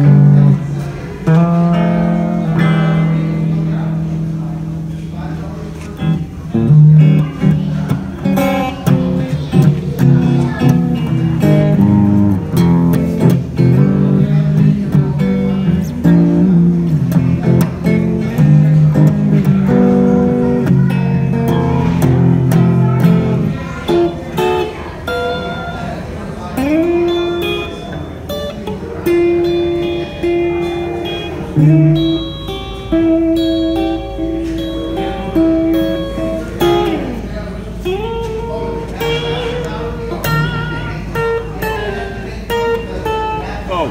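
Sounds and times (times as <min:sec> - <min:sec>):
electric guitar strummed chords: 0:00.0 - 0:43.9.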